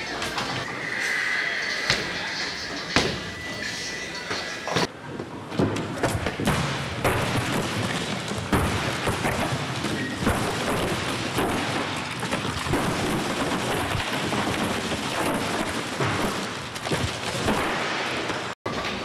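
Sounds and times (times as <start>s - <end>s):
noisy background: 0.0s - 12.8s.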